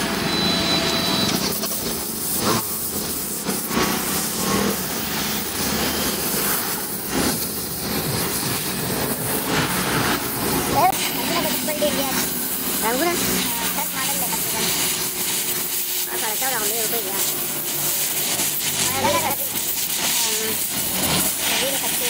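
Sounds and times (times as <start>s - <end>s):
welding torch flame hissing: 0.0s - 22.0s.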